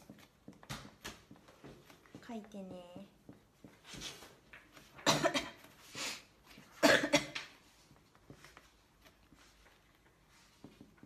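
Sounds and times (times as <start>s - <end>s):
woman coughing: 5.0s - 5.7s, 6.8s - 7.5s.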